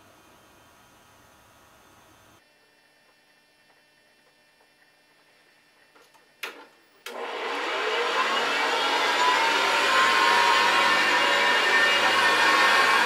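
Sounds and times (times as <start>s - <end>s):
vacuum cleaner motor whining: 7.1s - 13.0s.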